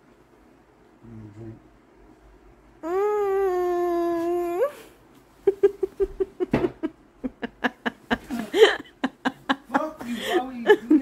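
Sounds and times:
woman moaning: 2.8 - 5.0.

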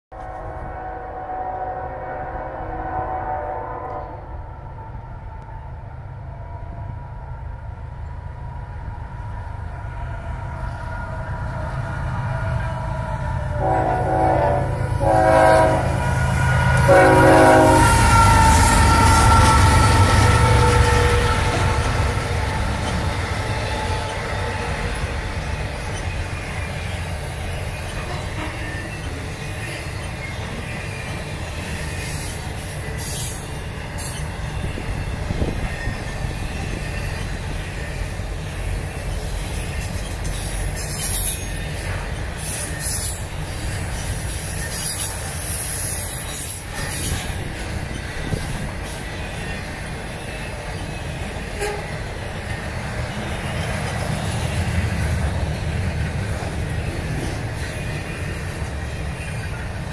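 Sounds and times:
train wheels rumbling on rail: 0.1 - 59.9
high-pitched wheel squeals: 38.9 - 49.6.

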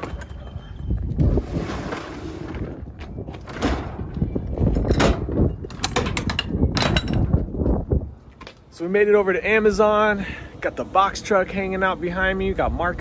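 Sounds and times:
metal latch clanks and clicks: 4.8 - 7.4.

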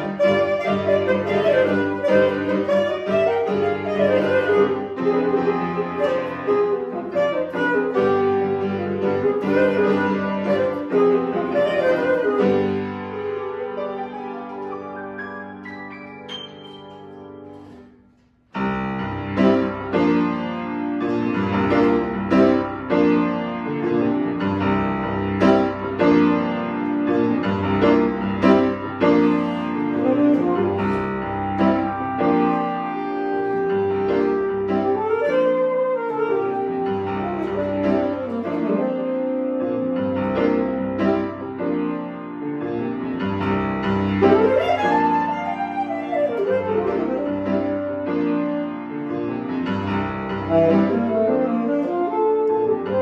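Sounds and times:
saxophone holding long notes: 0.0 - 13.3, 29.1 - 40.8, 44.2 - 48.6, 50.4 - 53.0
piano playing chords: 0.0 - 53.0.

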